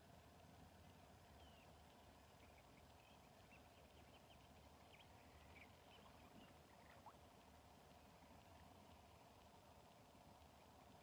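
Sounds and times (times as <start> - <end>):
low background hum: 0.0 - 11.0
faint bird chirps: 1.2 - 7.3.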